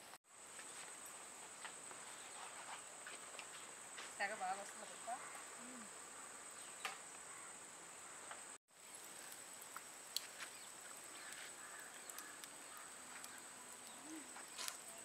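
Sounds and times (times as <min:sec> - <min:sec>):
faint ticks: 0:11.1 - 0:15.0.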